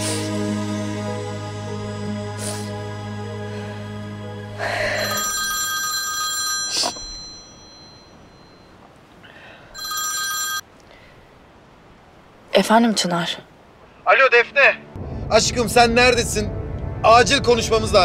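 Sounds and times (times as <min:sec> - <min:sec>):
soft background music: 0:00.0 - 0:05.7, 0:14.4 - 0:18.0
mobile phone ringtone: 0:04.9 - 0:08.7, 0:09.8 - 0:10.7.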